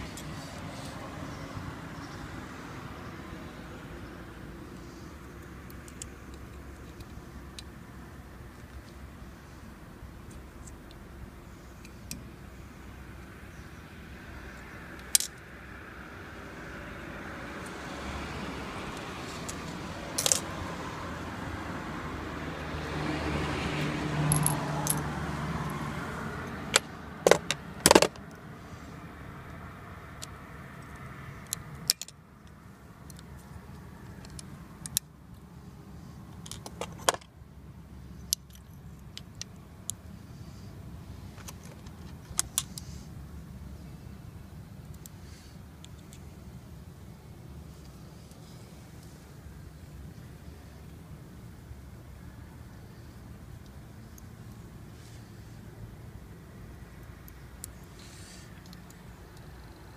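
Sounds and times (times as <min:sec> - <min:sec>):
passing vehicle engine: 0:00.0 - 0:06.3, 0:12.9 - 0:31.9
small metal parts clinking: 0:20.1 - 0:20.5, 0:24.3 - 0:25.0, 0:36.4 - 0:37.3.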